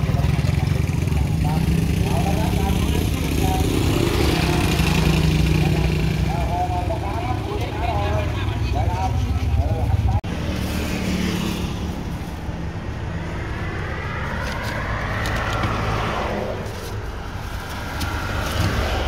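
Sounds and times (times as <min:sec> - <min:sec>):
low rumble: 0:12.3 - 0:19.0.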